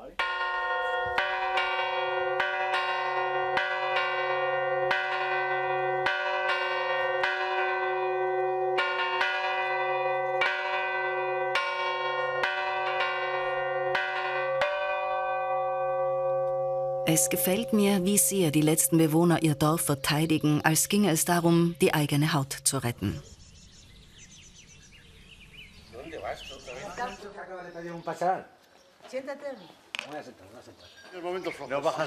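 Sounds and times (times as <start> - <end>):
church bells ringing: 0.0 - 22.9.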